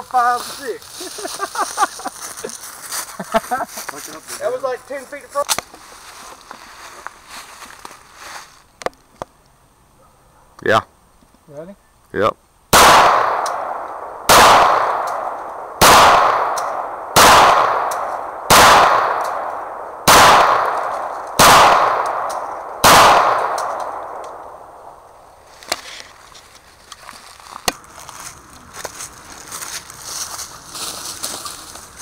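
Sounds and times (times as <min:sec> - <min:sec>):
pistol shots echoing: 0:12.7 - 0:24.9.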